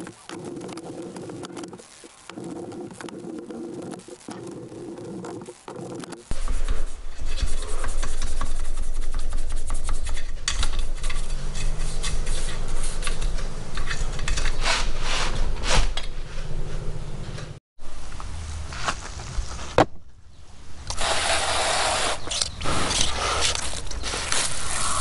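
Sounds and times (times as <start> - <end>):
wire wheel scraping metal: 10.1 - 15.0.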